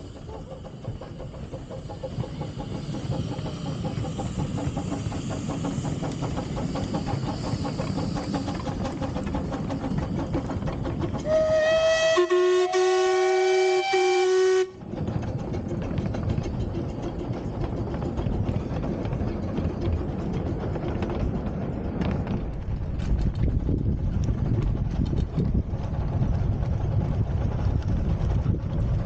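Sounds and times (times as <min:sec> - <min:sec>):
train running noise: 0:00.0 - 0:29.0
steam locomotive whistles: 0:11.1 - 0:14.9.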